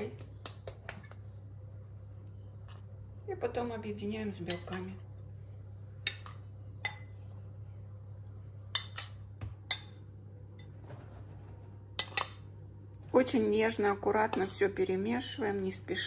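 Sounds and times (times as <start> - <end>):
low steady hum: 0.0 - 16.0
utensil clinking against bowl: 8.7 - 10.0.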